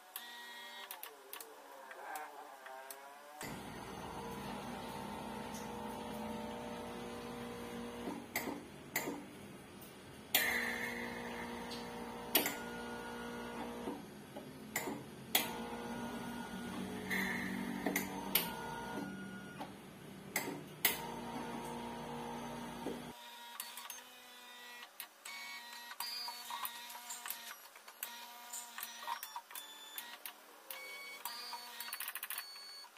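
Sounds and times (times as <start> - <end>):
analyzer motor hum with whine: 3.4 - 9.6, 10.2 - 23.1.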